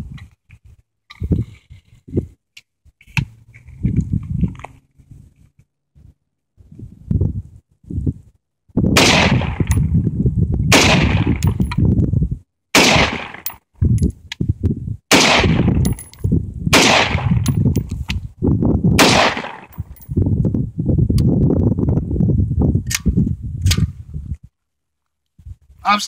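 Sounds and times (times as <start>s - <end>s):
rifle shots with low rumble: 8.9s - 10.1s, 10.7s - 11.9s, 12.7s - 13.6s, 15.1s - 17.9s, 18.9s - 20.2s.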